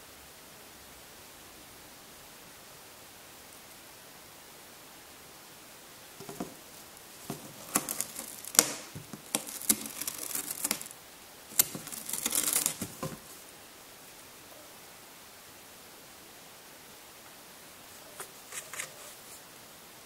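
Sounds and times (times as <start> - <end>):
cat scratching in cardboard box: 6.2 - 13.4, 18.2 - 19.3.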